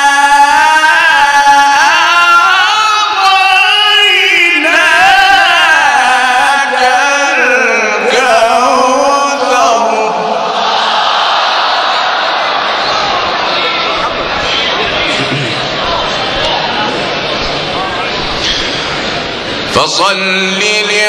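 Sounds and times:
man reciting melodically into microphone: 0.0 - 10.6, 19.7 - 21.0.

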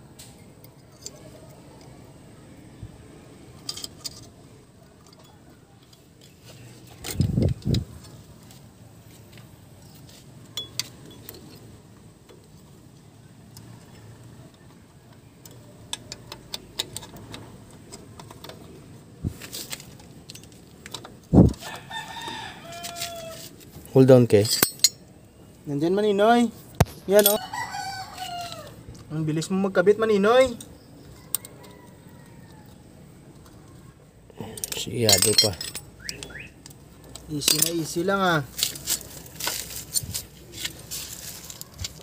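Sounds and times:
metallic clinks of brake hardware: 10.5 - 11.7, 24.4 - 25.1, 34.5 - 38.0.

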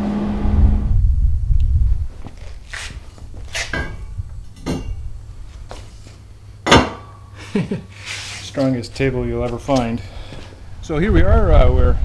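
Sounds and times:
steel tubing knocking and clinking: 3.6 - 5.0.

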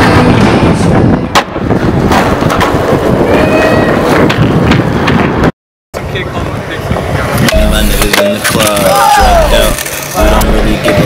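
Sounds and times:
skateboard wheels on concrete: 0.0 - 11.0
skateboard clacks and slaps: 1.2 - 3.4, 4.0 - 6.1.

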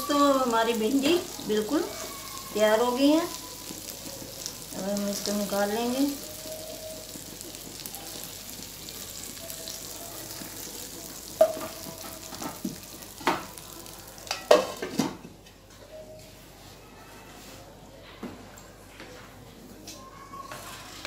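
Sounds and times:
gravy sizzling in wok: 0.0 - 15.2.

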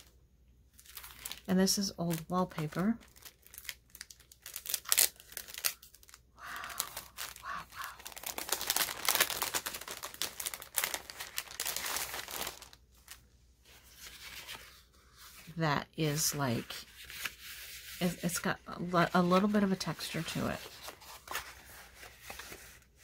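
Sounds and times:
cellophane crinkling: 0.7 - 13.2.

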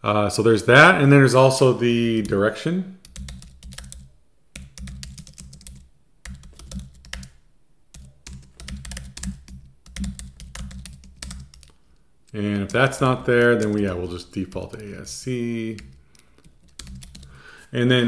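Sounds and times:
typing on computer keyboard: 3.0 - 11.8, 12.6 - 17.4.

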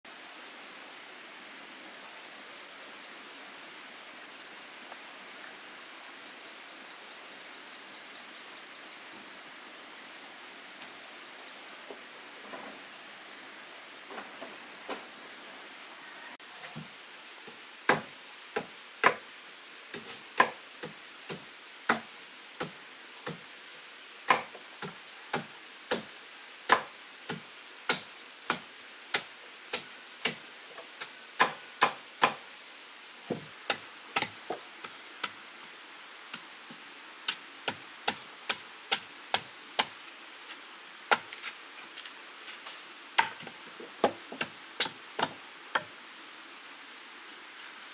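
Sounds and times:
blade chopping wood: 17.9 - 19.2, 24.3 - 26.1, 43.2 - 45.9.

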